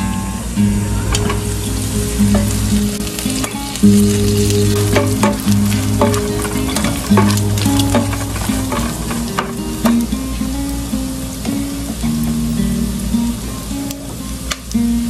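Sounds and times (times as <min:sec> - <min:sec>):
background music: 0:00.6 - 0:10.6
utensil scraping a pot: 0:01.1 - 0:09.6
meat sizzling in a pot: 0:01.3 - 0:15.0.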